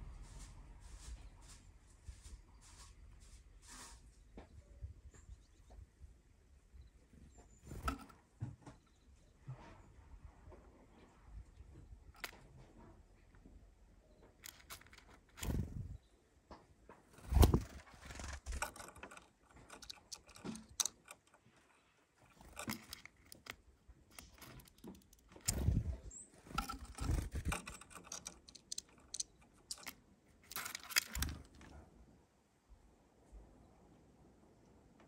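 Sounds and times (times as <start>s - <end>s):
bird scrabbling in seeds: 14.4s - 16.0s, 17.2s - 31.7s.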